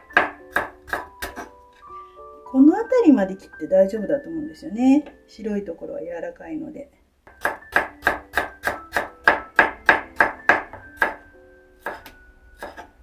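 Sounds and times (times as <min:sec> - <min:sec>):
knife cutting on wooden board: 0:00.2 - 0:01.6, 0:11.8 - 0:13.0.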